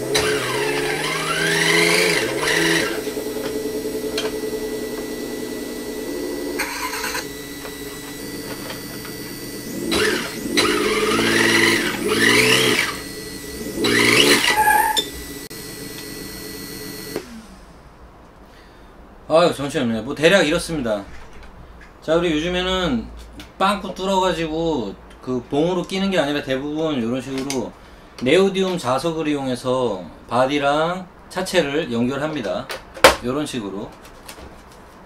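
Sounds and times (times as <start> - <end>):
simulated engine revving: 0.0 - 17.8.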